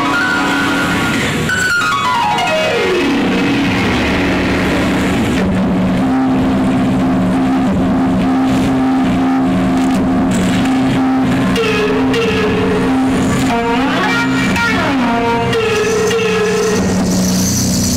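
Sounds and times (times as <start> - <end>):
low drone backing track: 0.0 - 17.9.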